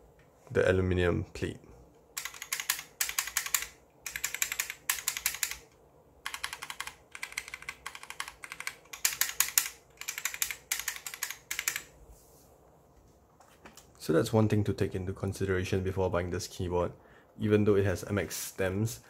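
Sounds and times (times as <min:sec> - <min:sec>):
mechanical keyboard typing: 0:02.2 - 0:11.9.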